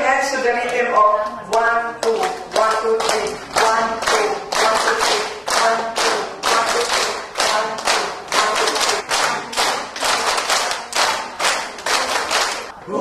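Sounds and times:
group clapping in unison: 0:01.5 - 0:12.8
voices chanting: 0:01.6 - 0:10.7.

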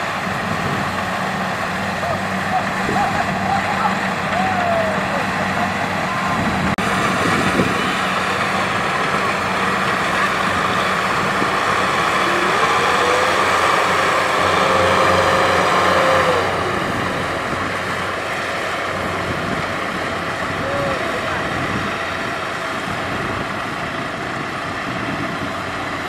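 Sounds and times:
combine harvester diesel engine: 0:00.0 - 0:26.0
tractor running: 0:00.0 - 0:26.0
thin whine: 0:06.1 - 0:21.8.

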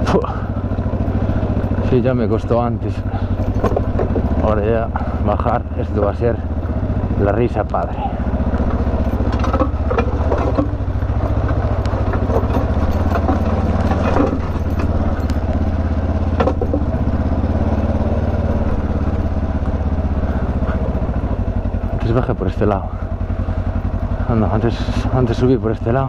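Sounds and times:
motorcycle engine at low revs: 0:00.0 - 0:26.0
bike knocking and clattering: 0:03.1 - 0:04.6, 0:08.6 - 0:17.5.

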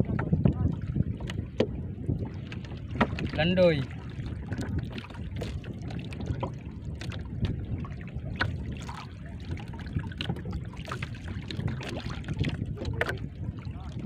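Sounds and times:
water lapping against hull: 0:00.0 - 0:14.0
wind rumble on microphone: 0:00.0 - 0:14.0
small splashes and clicks: 0:02.5 - 0:07.2, 0:08.4 - 0:13.2.

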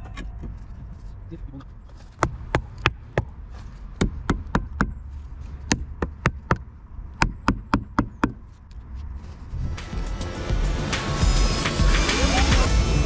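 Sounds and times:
hammer knocking wood: 0:05.7 - 0:08.4.

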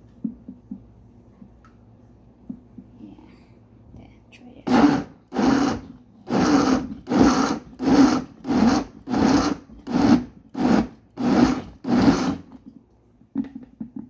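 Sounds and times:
blender motor pulsing: 0:04.7 - 0:12.6.

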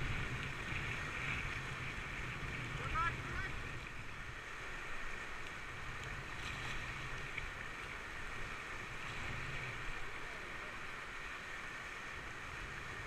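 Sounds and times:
wind rumble on microphone: 0:00.0 - 0:04.4
water splashing: 0:00.0 - 0:13.0
whitewater rushing: 0:00.0 - 0:13.0.

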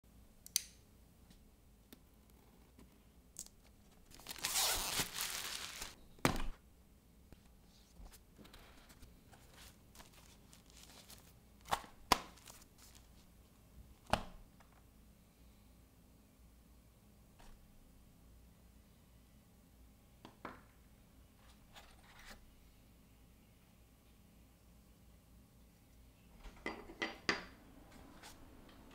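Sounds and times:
cardboard tearing: 0:04.0 - 0:06.0.

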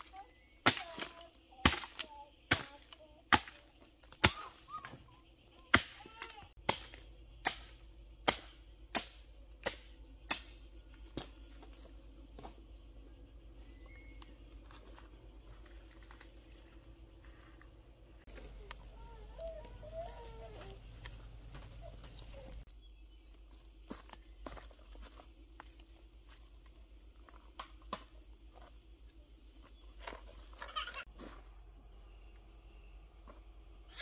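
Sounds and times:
insect chirping: 0:00.0 - 0:34.0
digging tool striking soil: 0:00.5 - 0:04.8, 0:05.6 - 0:11.5.

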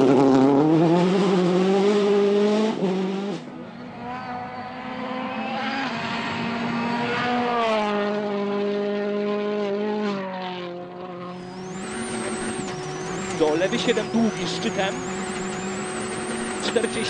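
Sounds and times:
rally car engine revving hard: 0:00.0 - 0:17.0.

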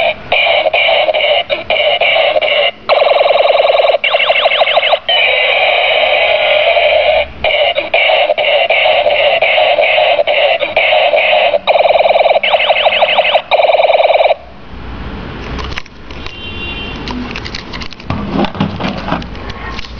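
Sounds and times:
toy gun electronic buzzing: 0:00.0 - 0:14.4.

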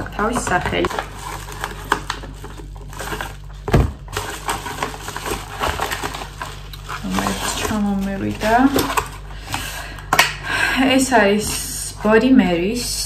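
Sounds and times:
packaging rustling: 0:00.0 - 0:09.8.

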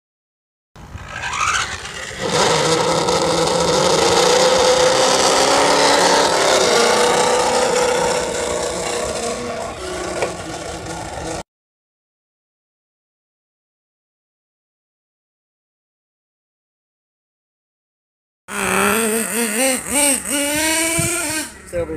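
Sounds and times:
rc car engine buzzing: 0:00.8 - 0:11.4, 0:18.5 - 0:21.9.

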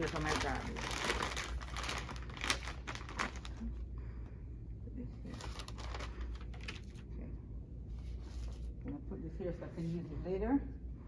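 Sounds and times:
packaging rustling: 0:00.0 - 0:03.7, 0:05.3 - 0:07.0
plastic bag crinkling: 0:00.0 - 0:03.8, 0:05.3 - 0:07.0
steady low hum: 0:00.0 - 0:11.0.

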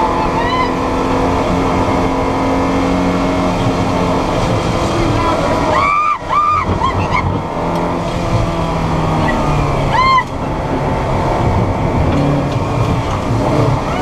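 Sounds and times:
race car engine revving: 0:00.0 - 0:14.0.

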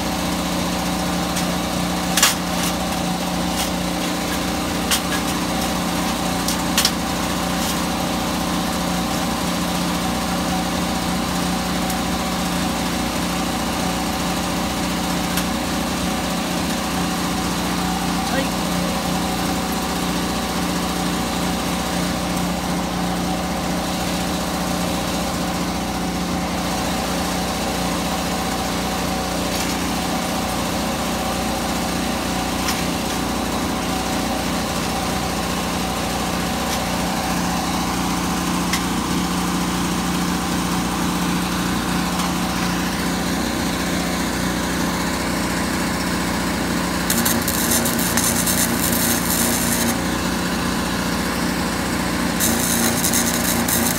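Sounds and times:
generator engine running: 0:00.0 - 0:53.9
welding arc crackling: 0:00.6 - 0:09.3, 0:47.0 - 0:50.5, 0:52.3 - 0:53.9.

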